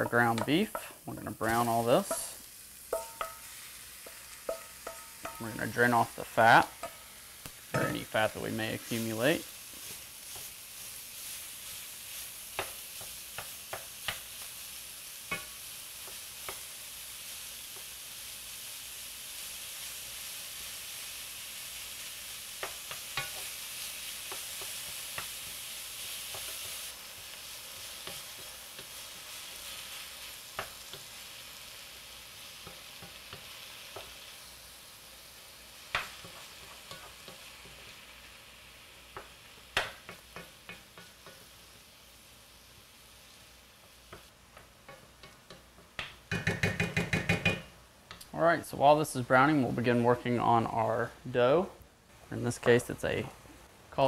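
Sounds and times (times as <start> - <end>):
wooden spoon scraping a pan: 0.0 - 14.3
meat sizzling in a skillet: 0.0 - 48.2.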